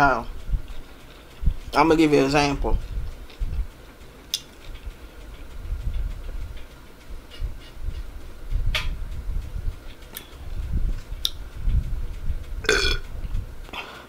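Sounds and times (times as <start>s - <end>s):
chewing and swallowing: 12.6s - 13.0s.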